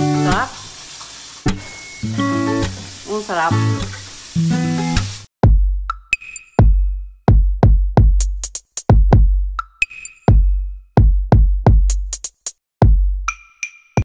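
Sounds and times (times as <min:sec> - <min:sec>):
drum machine beat: 0:05.4 - 0:13.7.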